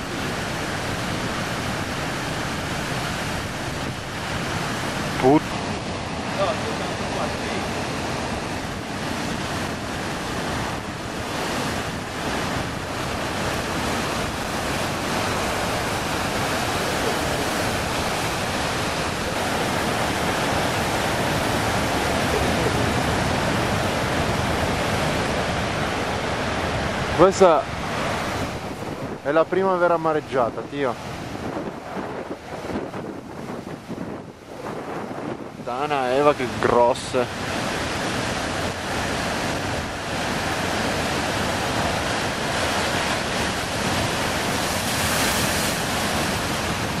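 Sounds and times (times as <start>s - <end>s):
waves breaking on shore: 0.0s - 47.0s.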